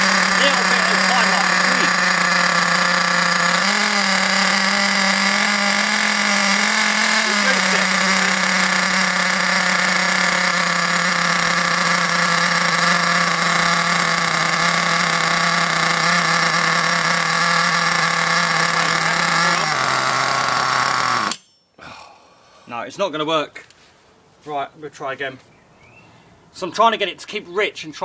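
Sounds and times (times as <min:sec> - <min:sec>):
small two-stroke engine running: 0:00.0 - 0:21.4.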